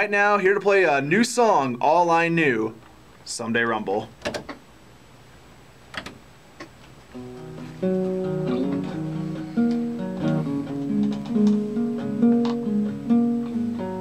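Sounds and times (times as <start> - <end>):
acoustic guitar playing: 7.1 - 14.0.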